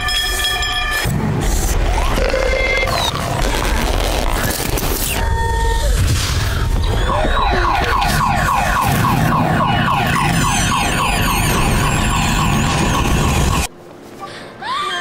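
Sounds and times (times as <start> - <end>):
alarm-like warble: 7.1 - 13.7.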